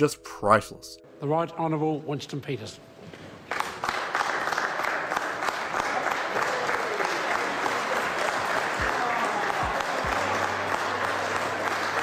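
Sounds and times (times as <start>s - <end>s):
crowd applauding: 3.5s - 12.0s.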